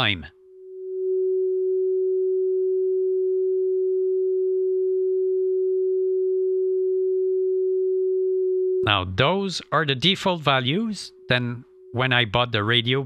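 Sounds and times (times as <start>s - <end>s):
low pure radio whistle: 0.6s - 8.8s.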